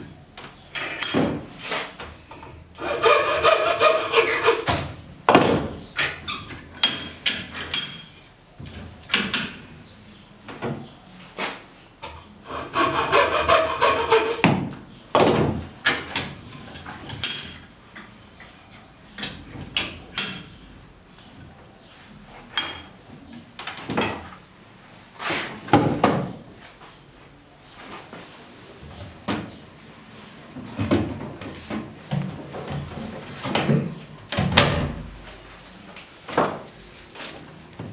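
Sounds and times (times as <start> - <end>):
rubbing against wood: 2.8 - 4.7, 12.5 - 14.4.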